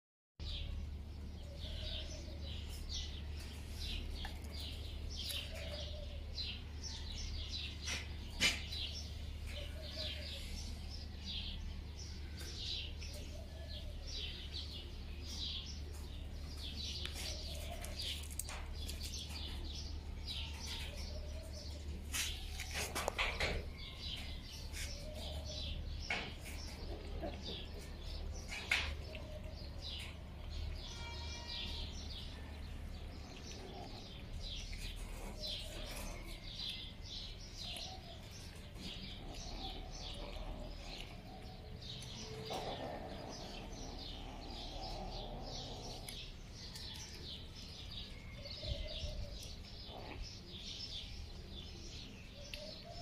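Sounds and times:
small birds chirping: 0.4s - 53.0s.

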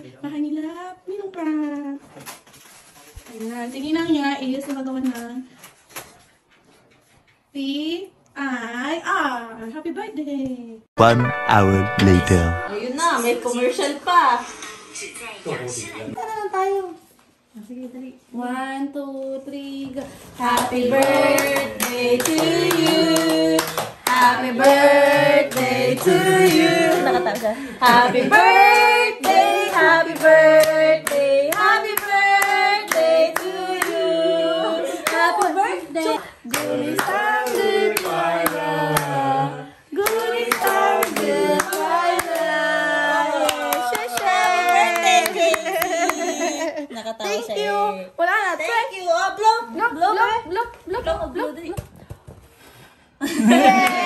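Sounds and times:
group singing a birthday song: 19.8s - 46.6s
hands clapping: 20.6s - 24.8s.

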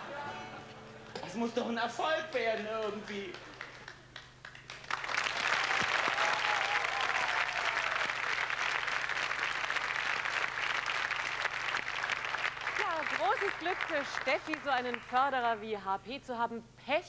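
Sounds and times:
audience applauding: 2.1s - 15.2s.

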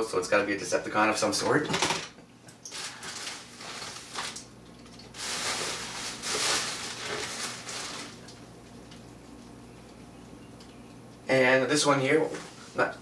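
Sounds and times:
plastic packaging crinkling: 2.7s - 8.5s.

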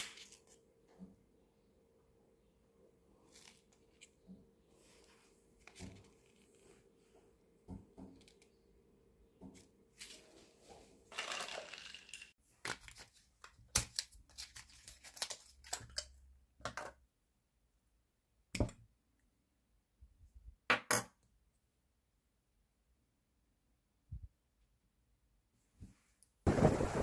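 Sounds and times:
packaging rustling tear: 11.2s - 16.0s.

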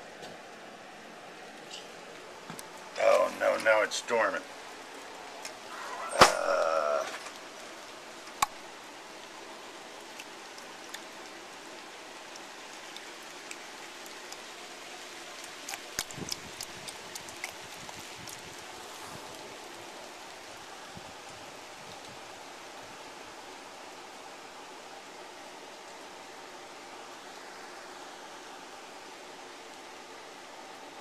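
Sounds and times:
steady rain hissing: 0.0s - 31.0s.

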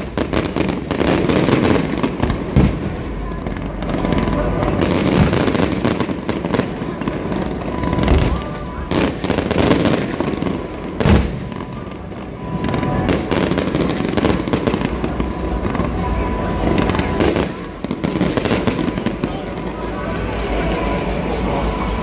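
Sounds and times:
fireworks bangs and crackling: 0.0s - 22.0s
music playing: 15.9s - 22.0s.

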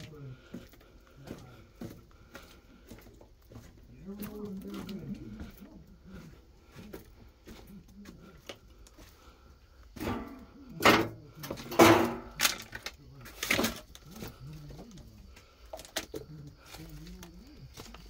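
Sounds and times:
footsteps on brick rubble: 0.0s - 18.0s
rubble scraping and crunching: 8.2s - 18.0s.

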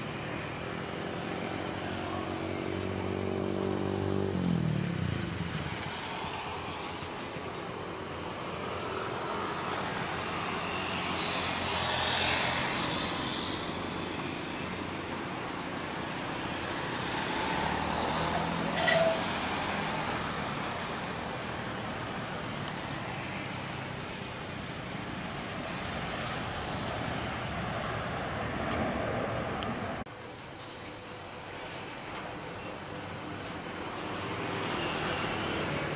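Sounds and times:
jet engines roaring: 22.4s - 30.1s.

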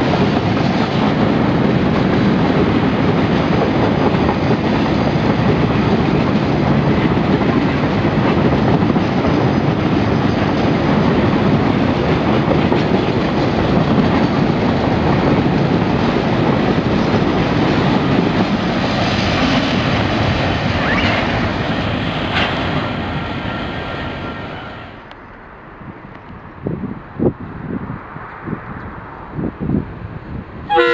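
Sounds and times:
train wheels clattering on rails: 0.0s - 24.9s.

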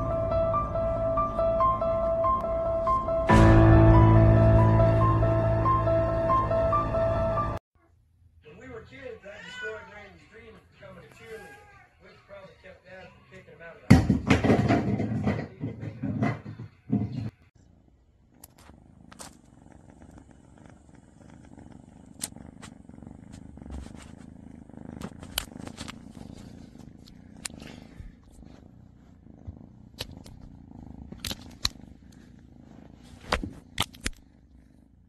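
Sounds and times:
cat purring: 14.4s - 35.0s
sharp clicks and rustles: 25.0s - 27.6s, 31.1s - 31.8s.

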